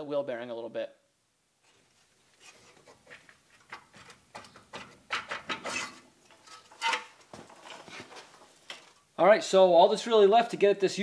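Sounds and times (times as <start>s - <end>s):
metal parts clinking and scraping: 5.1s - 8.4s.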